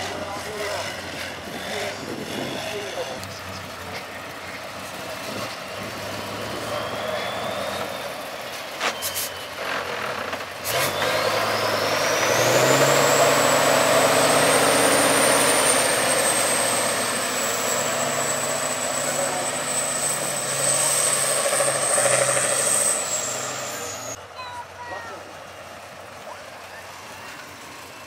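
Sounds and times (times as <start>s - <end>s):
diesel truck engine under load: 0.0s - 28.0s
high whistle: 6.6s - 9.6s.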